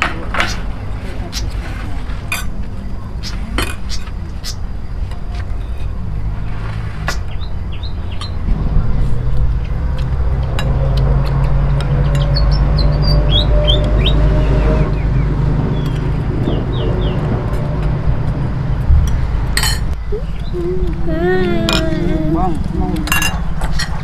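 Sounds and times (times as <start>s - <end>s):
engine rumbling: 0.0s - 24.0s
small bird chirping: 7.1s - 8.5s, 11.8s - 17.3s, 20.0s - 21.0s.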